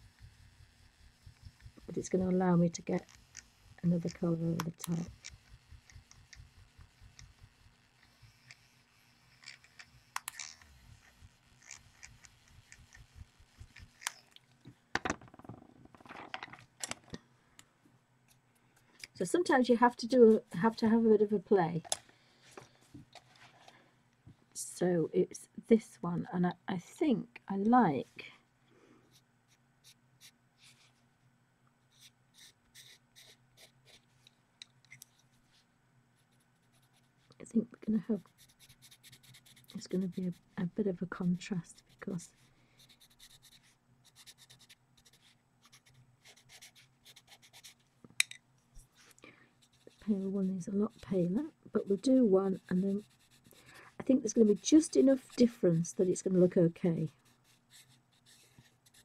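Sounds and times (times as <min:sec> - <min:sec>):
tool rubbing on paper: 0:00.0 - 0:14.2, 0:38.2 - 0:40.6, 0:41.2 - 0:47.8, 0:49.6 - 0:56.4.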